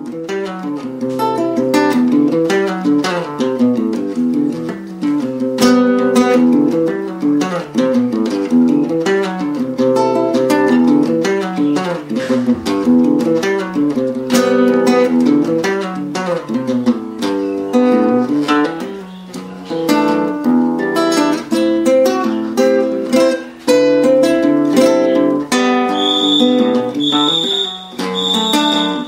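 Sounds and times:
acoustic guitar playing: 0:00.0 - 0:29.0
high steady tone: 0:26.0 - 0:29.0.

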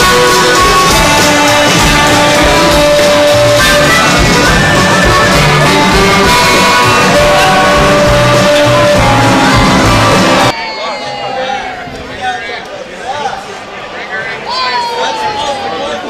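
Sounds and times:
live band playing: 0:00.0 - 0:10.5.

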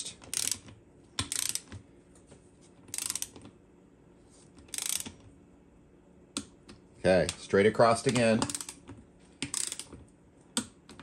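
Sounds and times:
torque wrench ratchet clicking: 0:00.3 - 0:01.7, 0:02.9 - 0:03.4, 0:04.7 - 0:05.2, 0:08.4 - 0:08.8, 0:09.4 - 0:09.9.

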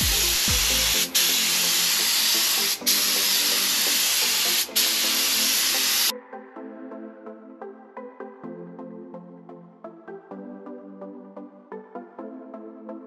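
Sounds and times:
paint spray gun hissing: 0:00.0 - 0:06.1
background music: 0:00.0 - 0:13.0.

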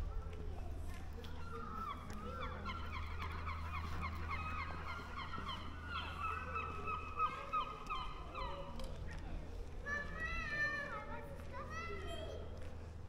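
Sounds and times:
flock of birds calling: 0:01.4 - 0:08.8.

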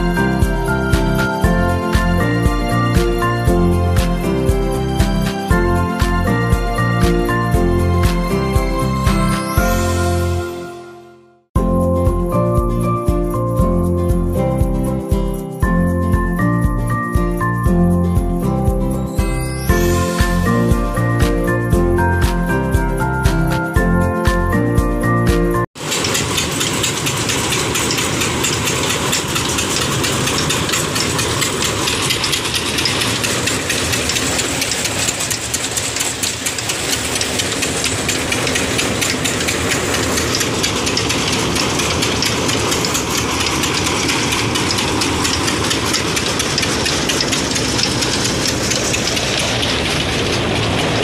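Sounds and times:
diesel engine knocking: 0:00.0 - 0:09.9, 0:25.8 - 0:51.0
threshing machine hiss and rattle: 0:25.8 - 0:51.0.

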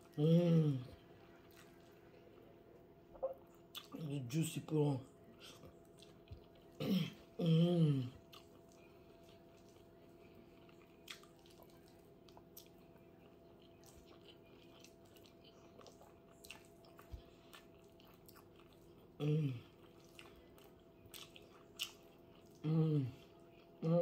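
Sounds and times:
person humming: 0:00.0 - 0:01.0, 0:06.8 - 0:08.2, 0:19.2 - 0:19.6, 0:22.6 - 0:23.2, 0:23.8 - 0:24.0
person chewing: 0:00.0 - 0:04.0, 0:05.2 - 0:24.0
faint electrical hum: 0:00.0 - 0:24.0.

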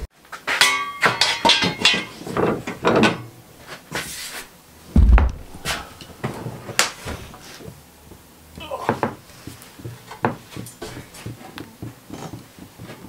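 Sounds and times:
heavy low thump: 0:05.0 - 0:05.9.

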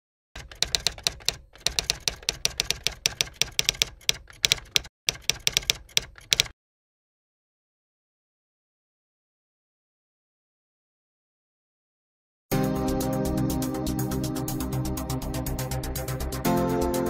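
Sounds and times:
typewriter key clicks: 0:00.4 - 0:06.5.

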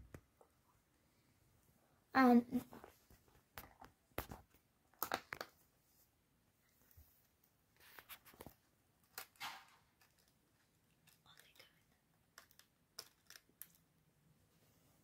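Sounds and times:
wires clicking and rustling: 0:06.8 - 0:14.0.

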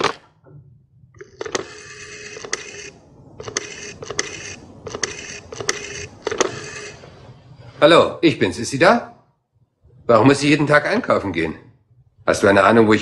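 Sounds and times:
rotary dial whirring and clicking: 0:00.0 - 0:00.3, 0:01.1 - 0:07.3.

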